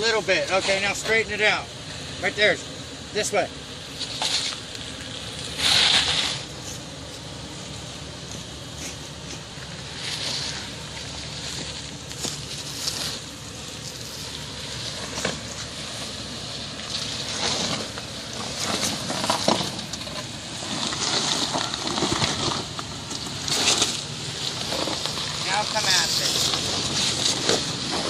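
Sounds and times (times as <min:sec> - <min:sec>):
tyres crunching over rocks: 0:03.9 - 0:28.0
stones cracking under wheels: 0:08.8 - 0:28.0.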